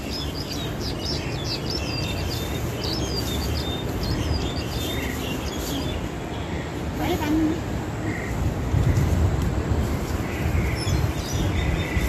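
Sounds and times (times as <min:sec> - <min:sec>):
starling chirps and whistles: 0:00.0 - 0:06.1.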